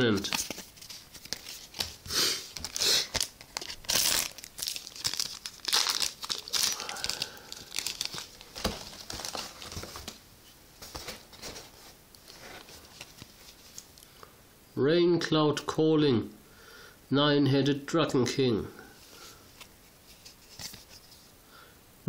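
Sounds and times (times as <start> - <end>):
foil wrapper tearing and crinkling: 0.2 - 10.2.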